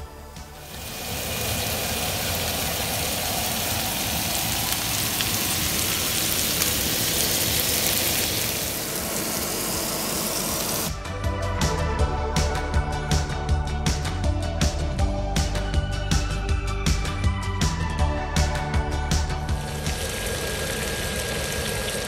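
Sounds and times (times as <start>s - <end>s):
chicken sizzling on griddle pan: 0.3s - 10.9s, 19.6s - 22.0s.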